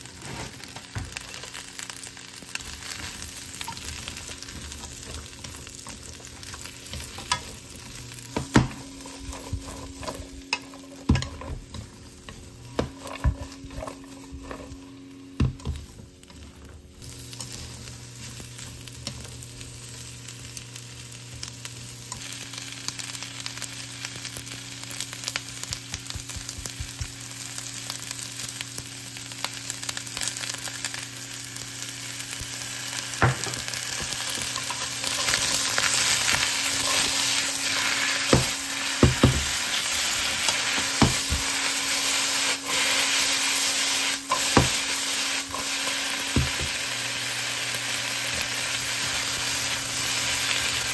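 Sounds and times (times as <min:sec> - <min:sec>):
onions sizzling in a pan: 0:00.0 - 0:50.9
chopsticks stirring: 0:03.7 - 0:16.5, 0:33.8 - 0:46.6.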